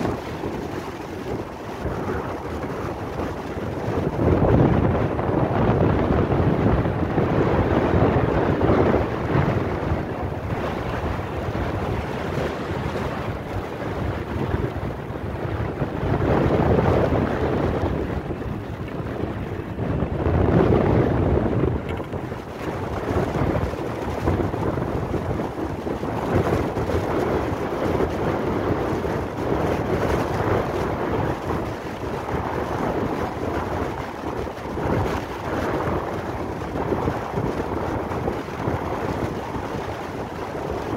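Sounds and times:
wind buffeting microphone: 0:00.0 - 0:40.9.

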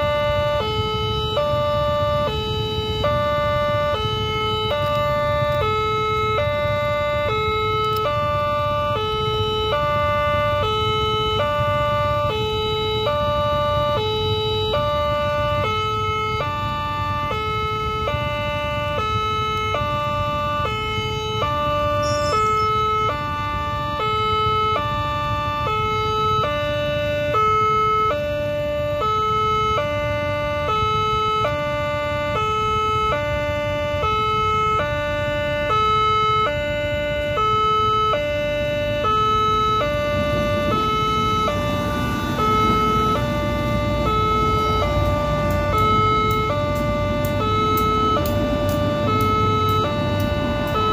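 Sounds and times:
train approaching: 0:00.0 - 0:26.5, 0:38.8 - 0:50.9
two-tone crossing warning alarm: 0:00.0 - 0:50.9.

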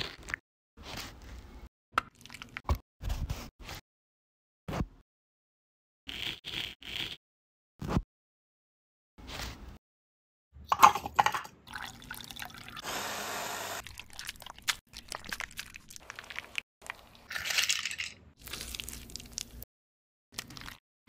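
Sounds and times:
electric food chopper whirring: 0:12.8 - 0:13.8
ice cubes rattling: 0:17.3 - 0:18.2.

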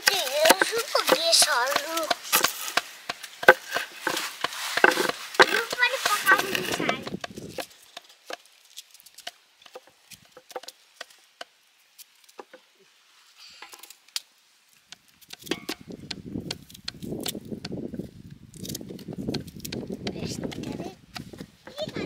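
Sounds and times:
knife chopping on a board: 0:00.0 - 0:07.2
dense rustling: 0:00.0 - 0:10.6.

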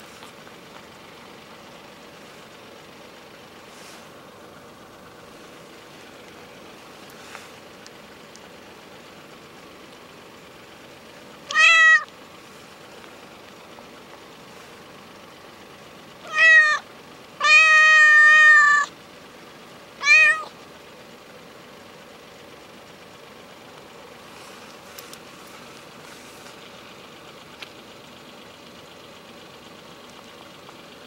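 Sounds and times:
cat meowing: 0:11.5 - 0:12.1, 0:16.2 - 0:16.8, 0:17.4 - 0:18.9, 0:20.0 - 0:20.5.

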